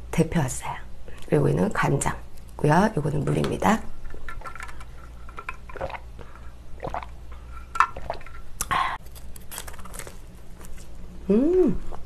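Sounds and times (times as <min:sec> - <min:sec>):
drinking through a straw: 0:05.0 - 0:07.2, 0:07.8 - 0:08.9.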